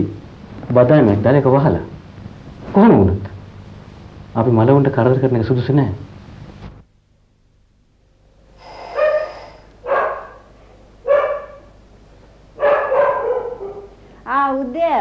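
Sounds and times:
dog barking: 8.9 - 11.8, 12.6 - 14.0.

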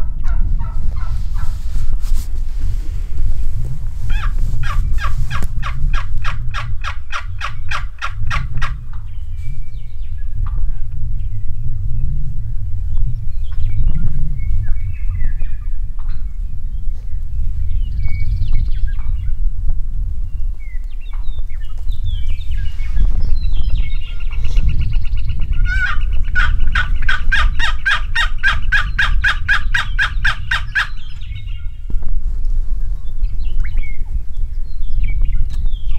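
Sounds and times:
wild turkeys calling: 4.1 - 9.0, 25.6 - 31.6
turkey yelping: 25.6 - 31.0
small birds chirping: 32.9 - 35.9.

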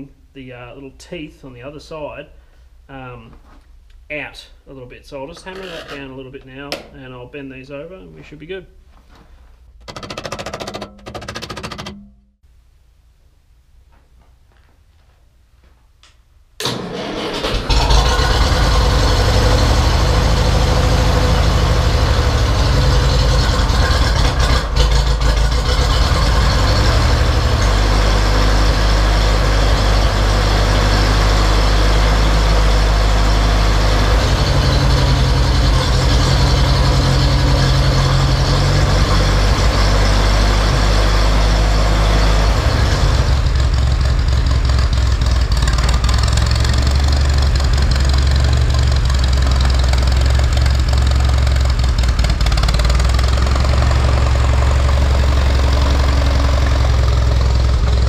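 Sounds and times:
tractor engine idling: 16.6 - 58.0.

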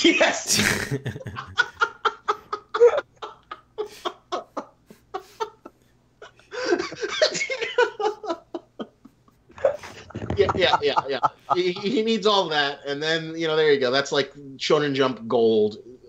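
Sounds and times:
people laughing: 0.5 - 12.2.

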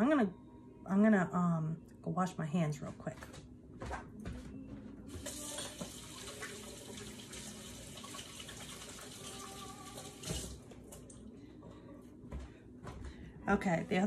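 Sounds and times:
tap water running: 5.2 - 11.1.

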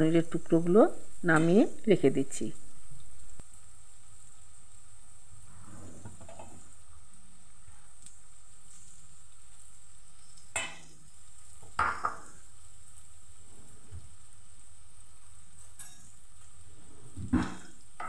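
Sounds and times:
cheese cubes sizzling in a frying pan: 0.0 - 18.0
spatula scraping and knocking pan: 5.6 - 6.6.

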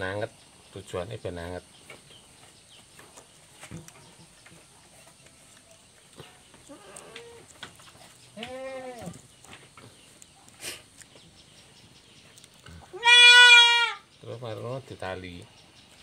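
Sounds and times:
goat kid bleating: 8.4 - 9.2, 12.9 - 14.0.

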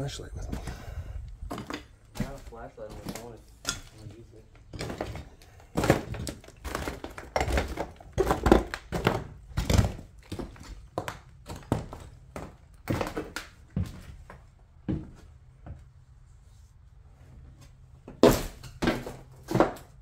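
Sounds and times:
debris crunching and crinkling: 1.4 - 14.4.

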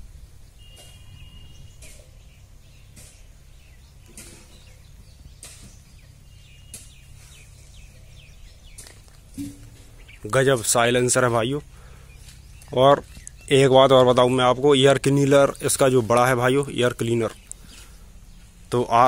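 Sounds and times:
tractor diesel engine idling: 5.0 - 19.0.

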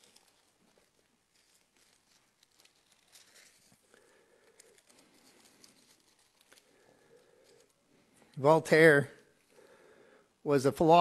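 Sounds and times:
pages being turned: 0.0 - 8.4.

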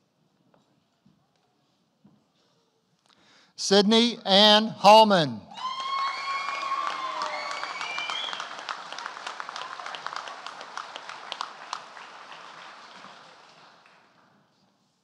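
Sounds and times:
audience applause: 5.6 - 14.4.

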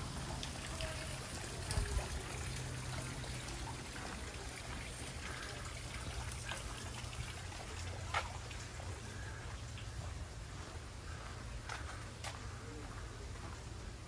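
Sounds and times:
water trickling: 0.0 - 10.4.

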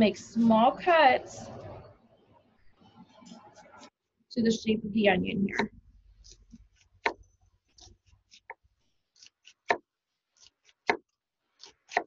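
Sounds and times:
knife cutting onion on wooden board: 5.5 - 12.0.

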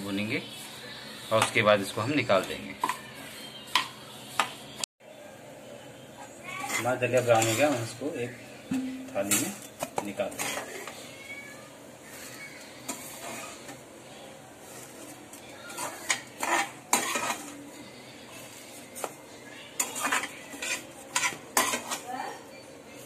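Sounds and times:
metal spoon scraping steel pan: 8.7 - 10.9, 12.9 - 13.7, 15.7 - 17.6, 19.8 - 22.1.

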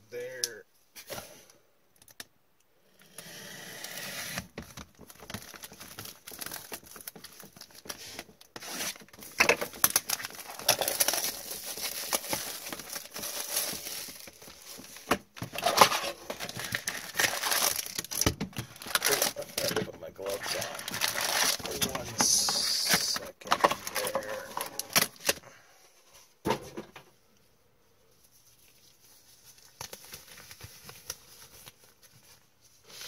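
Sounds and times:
plastic wrap crinkling and tearing: 4.2 - 25.4, 28.4 - 33.0.

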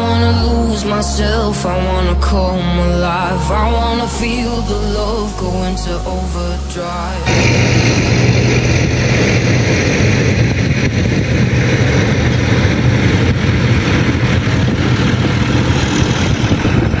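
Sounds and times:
diesel tractor engine running: 7.2 - 17.0.

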